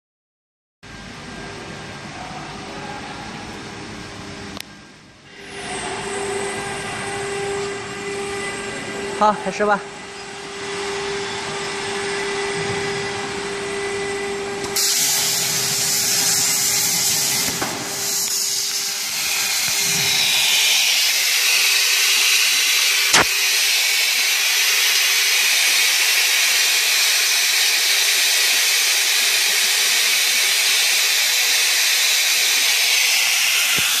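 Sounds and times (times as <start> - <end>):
plasma cutter hissing: 14.7 - 34.0
sharp click: 23.1 - 23.3.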